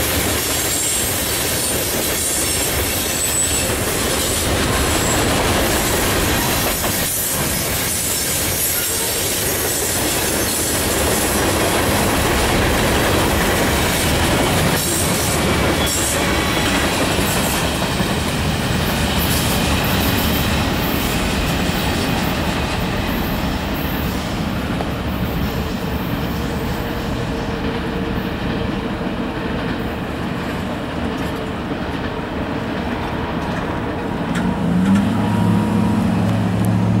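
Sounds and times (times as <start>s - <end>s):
freight train rolling on rails: 0.0s - 37.0s
road vehicle engine hum: 34.4s - 37.0s.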